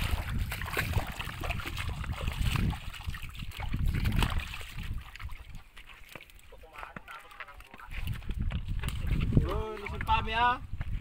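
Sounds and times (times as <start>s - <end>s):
river water splashing: 0.0s - 8.2s
low water rumble: 0.0s - 10.8s.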